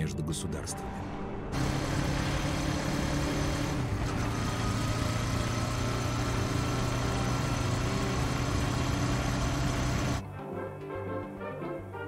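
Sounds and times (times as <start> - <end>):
motorbike engine running: 1.6 - 10.2.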